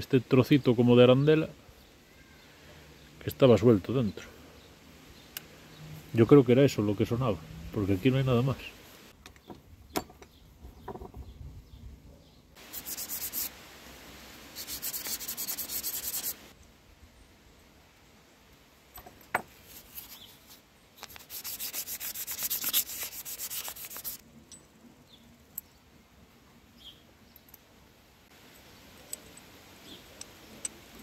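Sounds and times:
sandpaper rubbing metal: 0:12.6 - 0:13.5, 0:14.6 - 0:16.5, 0:19.7 - 0:24.2.

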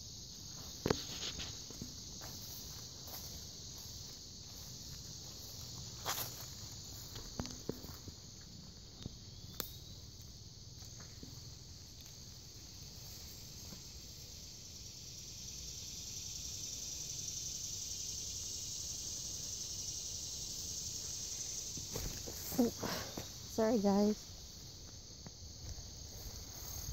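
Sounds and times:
insects chirping: 0:00.0 - 0:26.9
footsteps on forest floor: 0:00.4 - 0:08.9, 0:21.8 - 0:24.1.

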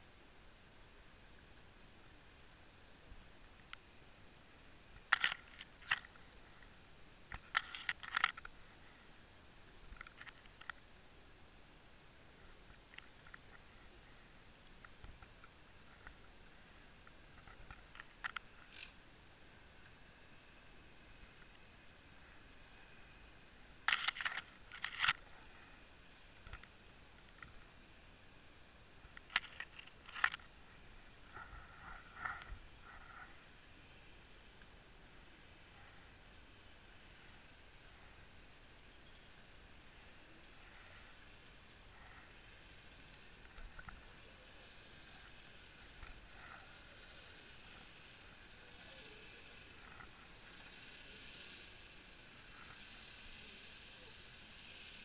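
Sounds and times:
underwater clicks and crunches: 0:05.0 - 0:06.2, 0:07.3 - 0:08.5.

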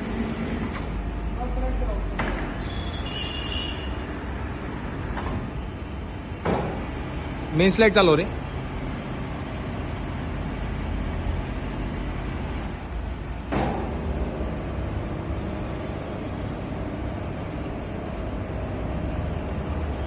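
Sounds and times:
sharp machine clunk: 0:13.4 - 0:14.2.

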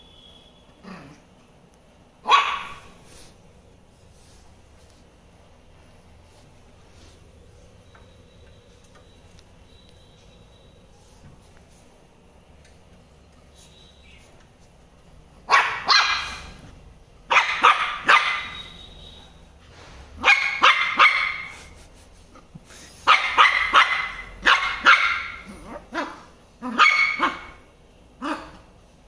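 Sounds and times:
puppy barking: 0:02.2 - 0:03.0, 0:15.4 - 0:16.5, 0:17.3 - 0:18.8, 0:20.2 - 0:21.8, 0:23.0 - 0:28.7.

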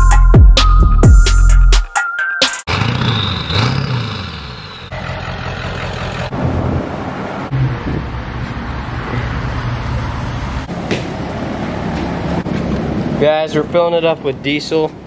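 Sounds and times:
truck engine running: 0:02.7 - 0:13.7.

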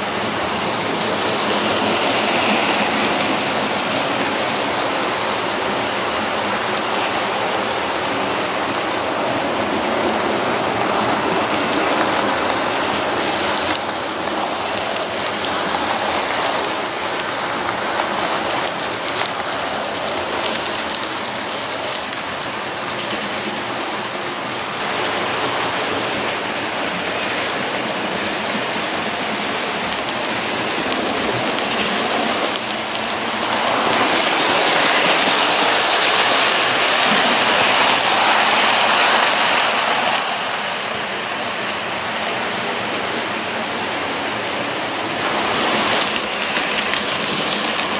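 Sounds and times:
model trains rumbling on track: 0:00.0 - 0:47.9
clicking over rail joints: 0:09.2 - 0:24.6, 0:45.0 - 0:47.9.

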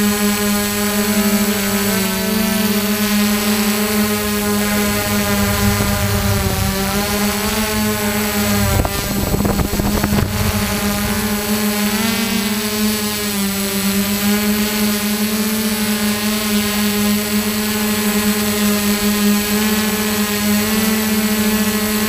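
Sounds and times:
drone motors buzzing hum: 0:00.0 - 0:22.0
wind buffeting microphone: 0:03.7 - 0:13.0.

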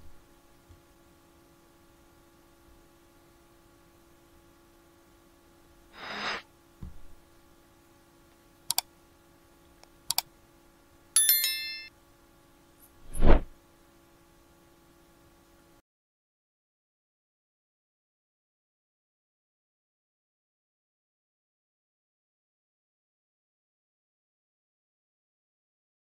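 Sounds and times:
faint steady hum: 0:00.0 - 0:15.8
mouse clicks: 0:08.7 - 0:08.9, 0:10.1 - 0:10.3
bell chime: 0:11.2 - 0:11.9.

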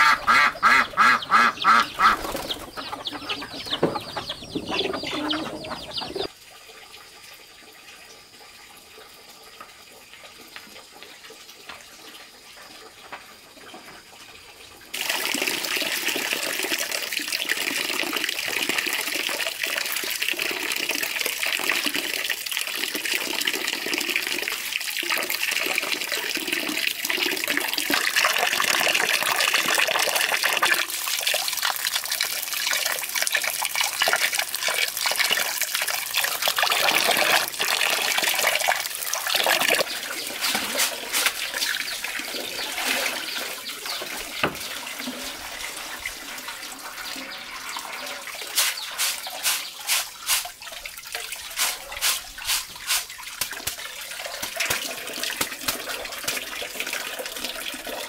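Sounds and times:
water trickling: 0:05.4 - 0:58.0
quick splashes and drips: 0:24.6 - 0:58.0
tap water splashing into metal basin: 0:33.2 - 0:58.0
rice swished in basket: 0:48.5 - 0:50.5, 0:51.6 - 0:53.1.

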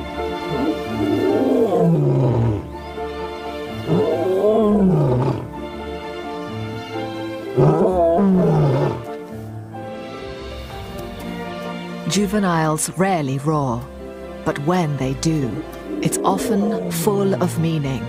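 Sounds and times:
background music with held notes: 0:00.0 - 0:18.0
lion roaring: 0:00.4 - 0:02.8, 0:03.8 - 0:05.6, 0:07.6 - 0:09.1, 0:15.4 - 0:17.5.

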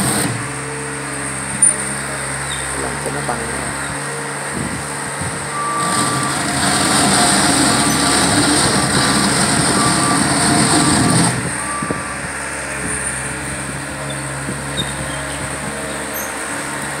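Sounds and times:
loader diesel engine and tracks: 0:00.0 - 0:17.0.

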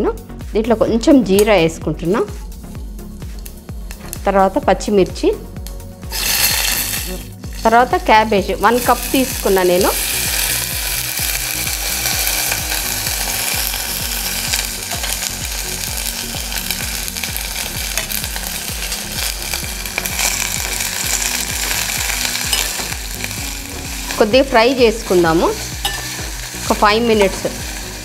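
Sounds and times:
cabbage sizzling in hot oil: 0:06.0 - 0:28.0
metal ladle scraping a pan: 0:06.1 - 0:07.2, 0:25.6 - 0:26.8.

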